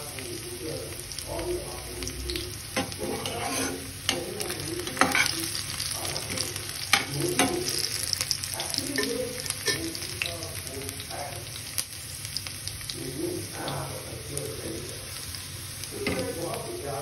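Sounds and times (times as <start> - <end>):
vegetables sizzling in oil: 0.0 - 17.0
spatula scraping a pan: 2.8 - 7.7.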